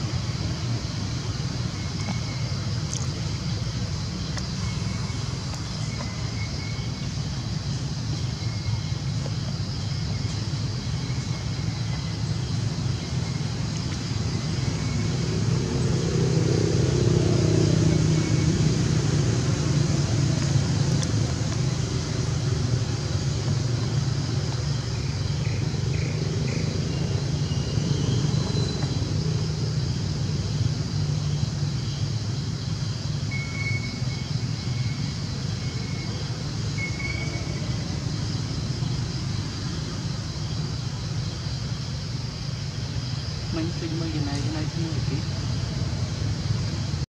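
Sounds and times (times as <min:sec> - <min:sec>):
low engine rumble: 0:00.0 - 0:47.0.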